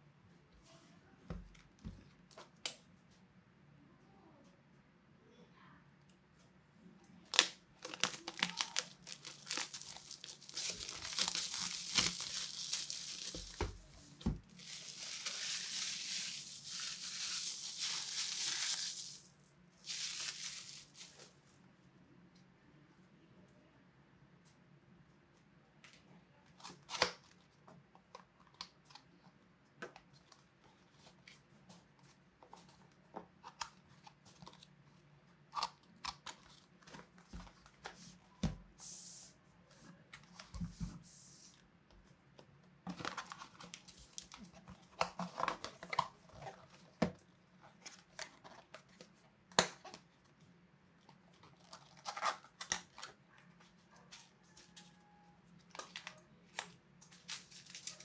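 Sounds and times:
plastic packaging rustling: 0:07.3 - 0:21.4, 0:42.9 - 0:47.0, 0:57.0 - 0:58.0.

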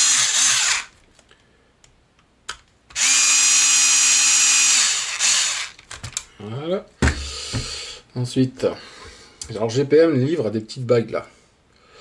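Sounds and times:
electric screwdriver motor whine: 0:00.0 - 0:00.9, 0:03.0 - 0:05.8.

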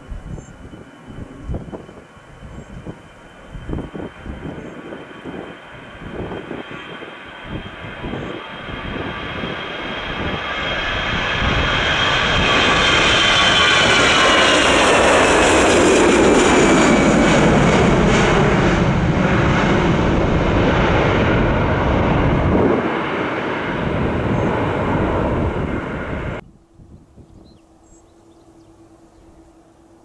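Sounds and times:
airliner engines rushing: 0:00.0 - 0:30.0.

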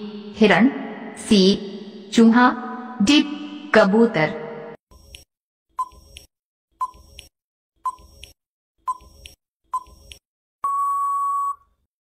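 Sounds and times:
long steady beep: 0:10.6 - 0:11.7.

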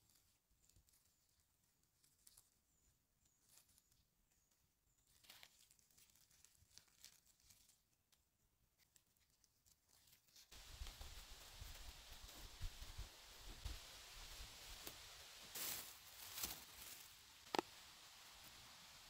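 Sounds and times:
faint rustles in forest litter: 0:00.0 - 0:19.0
mushrooms snapping: 0:15.6 - 0:17.7.

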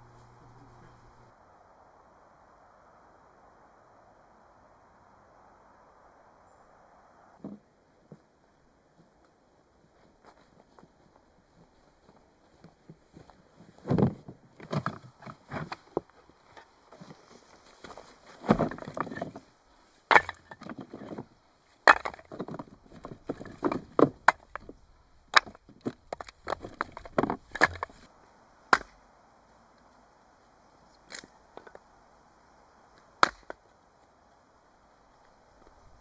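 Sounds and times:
firewood logs knocking together: 0:12.9 - 0:17.2, 0:17.8 - 0:19.5, 0:20.1 - 0:28.1, 0:28.7 - 0:29.0, 0:33.2 - 0:33.6
hatchet striking wood: 0:21.9 - 0:22.2, 0:28.7 - 0:29.0, 0:33.2 - 0:33.6.

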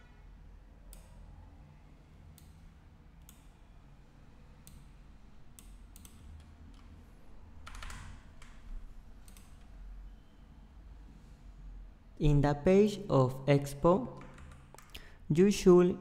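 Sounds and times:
keyboard and mouse clicking: 0:04.6 - 0:04.9, 0:05.5 - 0:07.0, 0:07.6 - 0:09.7, 0:14.2 - 0:15.1.

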